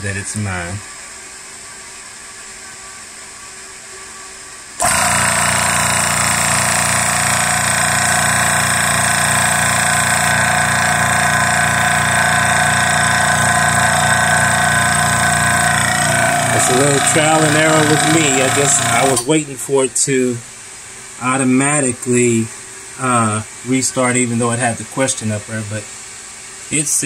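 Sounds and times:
air compressor pumping: 4.8 - 19.4
faint steady hum: 5.7 - 27.0.

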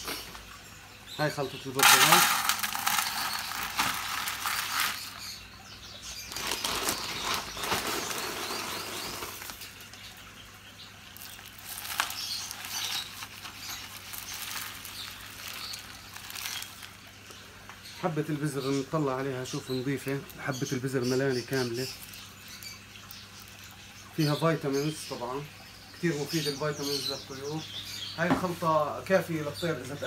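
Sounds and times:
seeds pouring onto plastic plate: 1.8 - 5.3, 6.3 - 9.7, 11.2 - 17.0.

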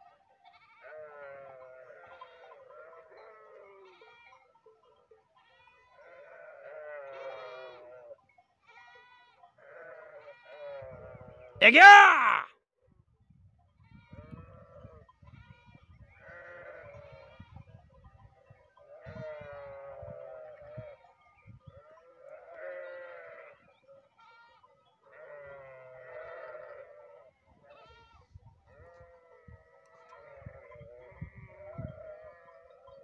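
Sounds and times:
sheep bleating: 0.5 - 4.4, 5.5 - 12.5, 16.2 - 17.3, 18.9 - 21.0, 22.0 - 32.8.

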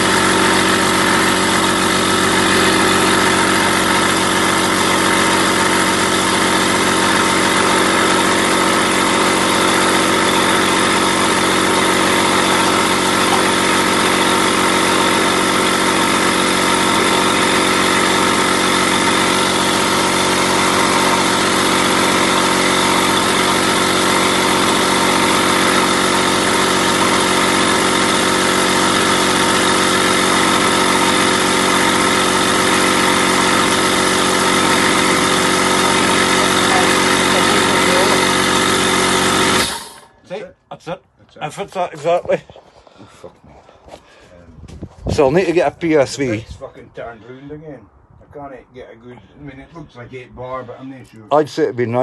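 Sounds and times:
air compressor running: 0.0 - 40.2.

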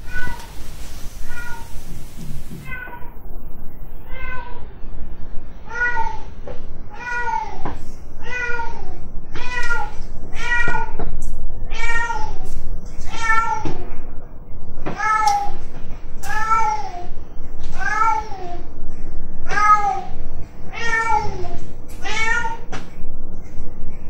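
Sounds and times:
cat meowing loudly: 0.0 - 1.9, 2.6 - 3.2.

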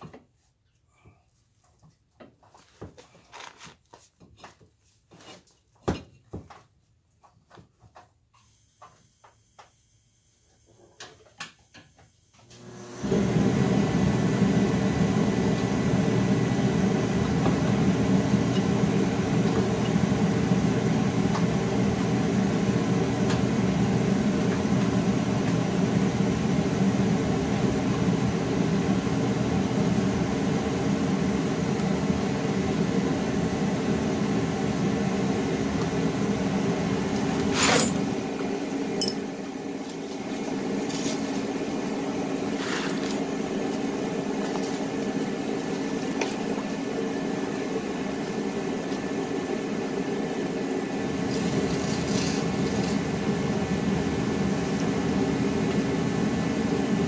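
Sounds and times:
machine humming loudly: 12.4 - 57.0.

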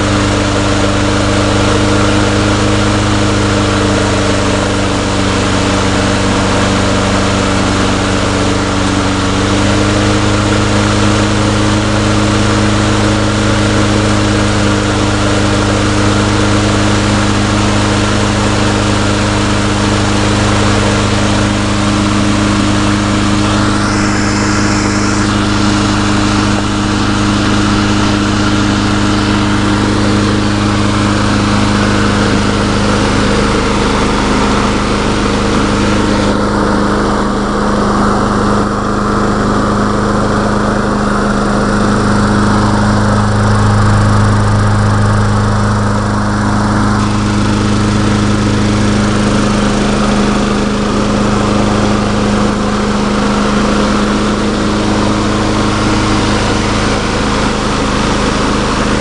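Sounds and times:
lawn mower engine running: 0.0 - 59.0.

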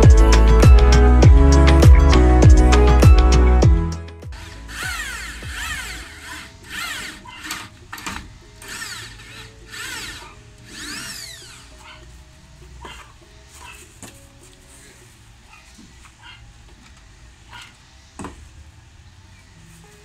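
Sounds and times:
power drill motor whine: 4.4 - 11.8.

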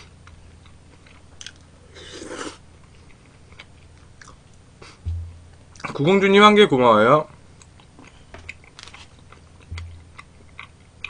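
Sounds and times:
chewing and mouth sounds: 0.0 - 5.1, 7.6 - 11.0
low thump: 5.1 - 5.7, 9.7 - 10.2.

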